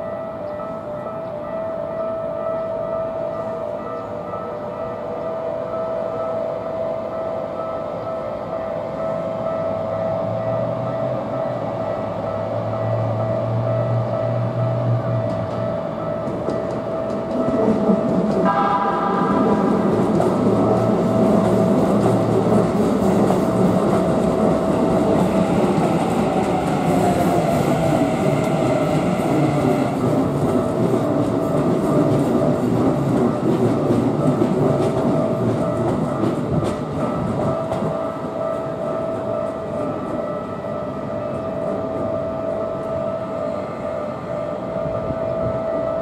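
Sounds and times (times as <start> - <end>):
crossing warning bells ringing: 0.0 - 46.0
train wheels clattering on rails: 11.9 - 43.0.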